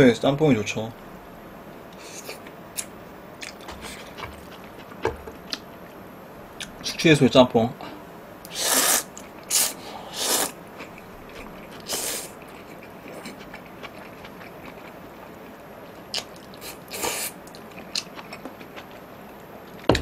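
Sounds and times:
quiet chewing: 1.9s - 5.7s, 10.8s - 19.9s
noodles being slurped: 8.5s - 10.6s.

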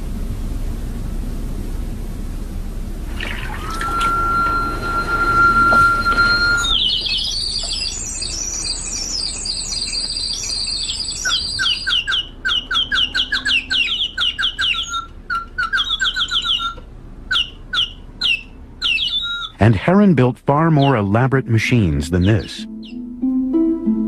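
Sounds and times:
mechanical bird whistle trilling: 3.2s - 19.6s.

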